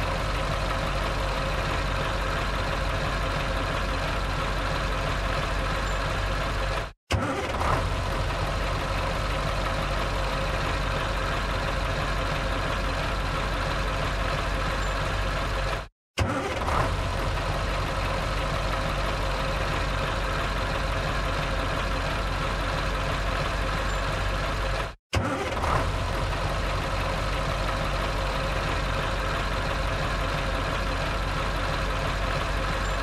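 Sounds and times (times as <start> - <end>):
truck engine idling: 0.0 - 33.0.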